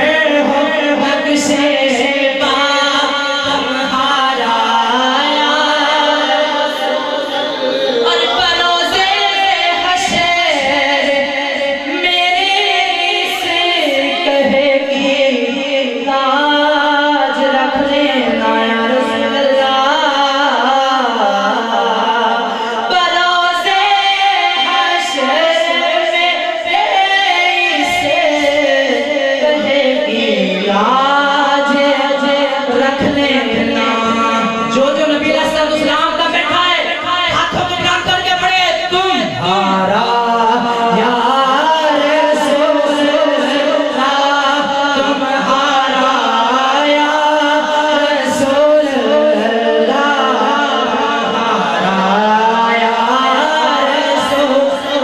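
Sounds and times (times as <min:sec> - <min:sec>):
man singing into a microphone: 0:00.0 - 0:55.0.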